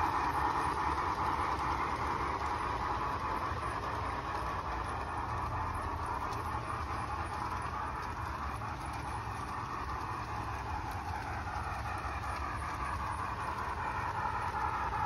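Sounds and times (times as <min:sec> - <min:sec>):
model steam locomotive rumble and hiss: 0:00.0 - 0:15.0
wheels rolling on rails: 0:00.0 - 0:15.0.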